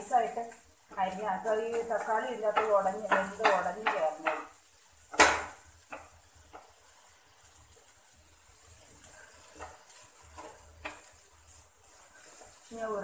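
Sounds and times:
spatula tapping and scraping pan: 0.0 - 8.0, 8.8 - 12.7
egg sizzling in a frying pan: 0.0 - 13.0.

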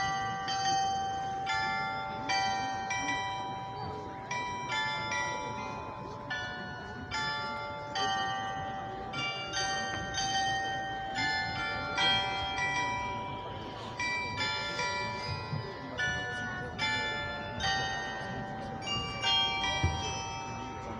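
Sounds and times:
tower bells playing a melody: 0.0 - 20.9.

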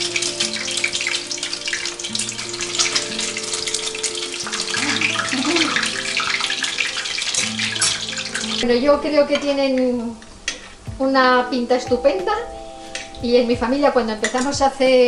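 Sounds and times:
bread frying in hot oil: 0.0 - 11.2.

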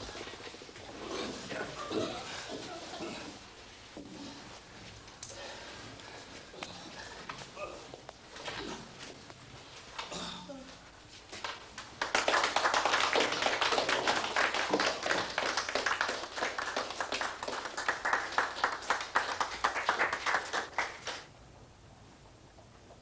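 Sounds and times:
people clapping: 11.4 - 21.3.

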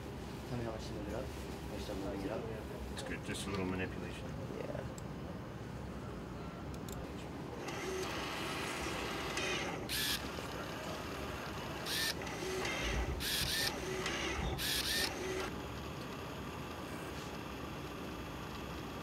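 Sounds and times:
steady mechanical hum: 0.0 - 19.0
motor whirring bursts: 7.6 - 15.6.

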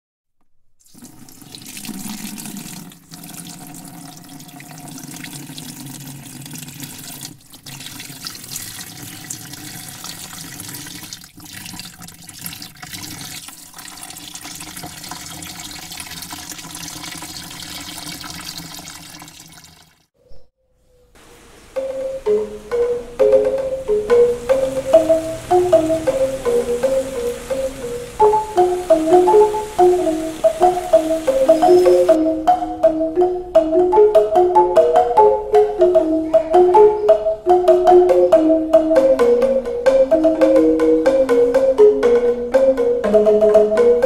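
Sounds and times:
waterfall rushing: 21.2 - 32.2.

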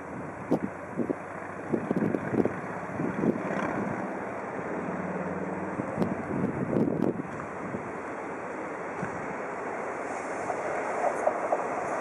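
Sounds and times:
train rumbling: 0.0 - 12.0
wind thumps on microphone: 6.0 - 7.8.

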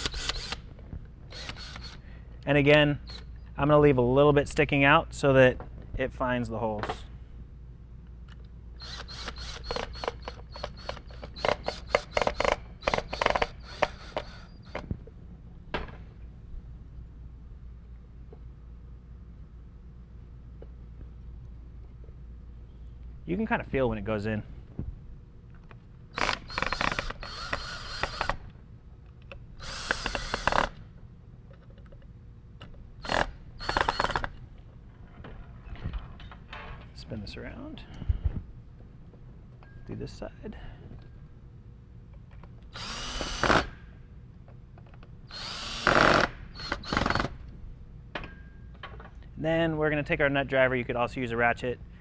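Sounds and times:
cordless drill driving screws: 0.0 - 0.6, 1.3 - 2.0, 8.8 - 14.8, 26.2 - 28.4, 29.6 - 30.8, 33.0 - 34.3, 42.7 - 43.8, 45.3 - 47.3.

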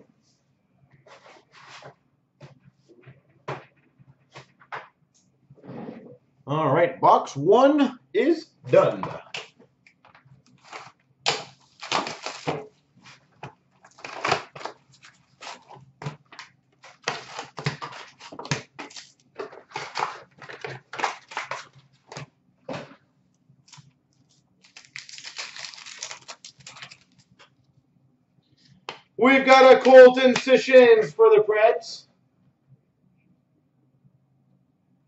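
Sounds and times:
crinkling of pack wrappers: 10.4 - 13.2, 13.8 - 22.3, 23.7 - 27.5.

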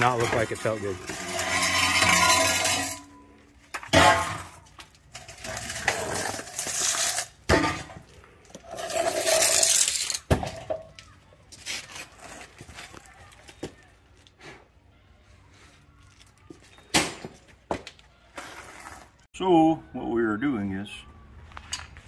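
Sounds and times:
metal clanking and scraping: 0.0 - 11.0.

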